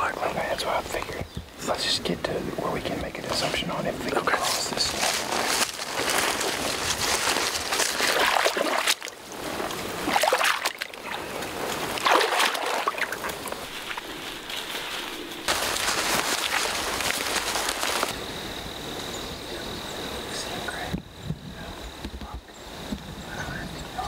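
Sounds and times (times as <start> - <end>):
footsteps splashing through water: 4.4 - 18.2.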